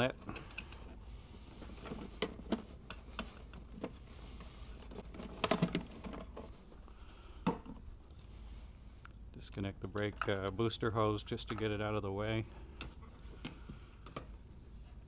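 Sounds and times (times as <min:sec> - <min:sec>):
plastic clatter: 0:04.8 - 0:06.6.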